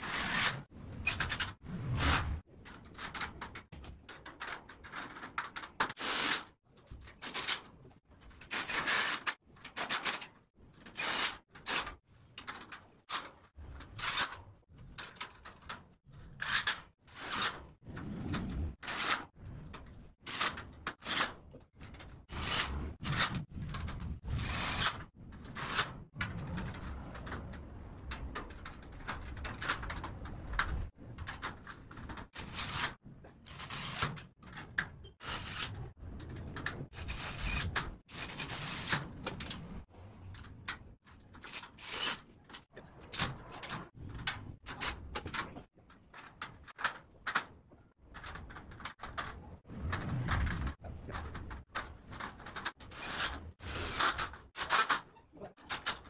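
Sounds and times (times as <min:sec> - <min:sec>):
cordless drill driving screws: 0:11.0 - 0:11.8.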